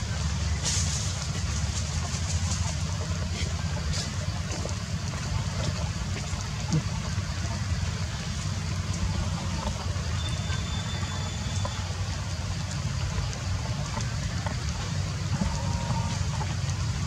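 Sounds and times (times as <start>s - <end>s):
low rumble: 0.0s - 17.0s
water dripping through leaves: 0.0s - 17.0s.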